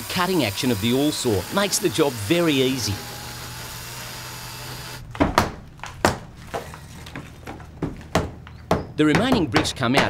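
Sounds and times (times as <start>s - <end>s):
saw cutting into brick: 0.0s - 5.0s.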